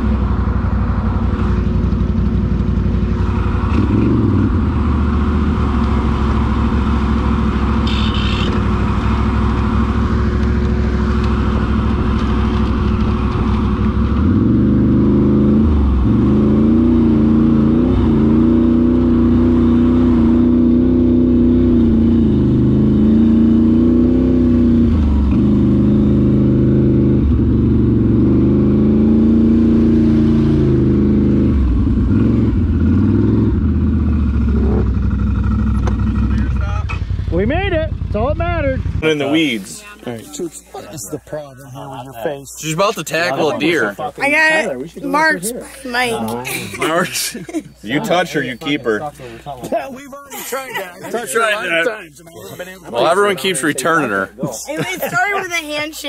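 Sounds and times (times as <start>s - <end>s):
atv engine revving: 0.0s - 41.2s.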